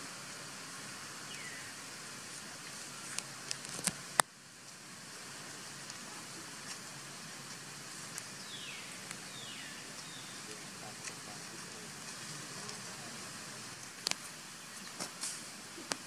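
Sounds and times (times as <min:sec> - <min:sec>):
forest ambience hiss: 0:00.0 - 0:16.0.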